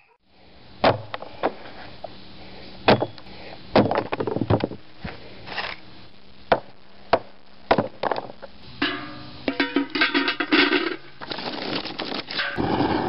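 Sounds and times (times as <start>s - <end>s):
hatchet chopping wood: 0.8s - 1.2s, 2.9s - 3.2s.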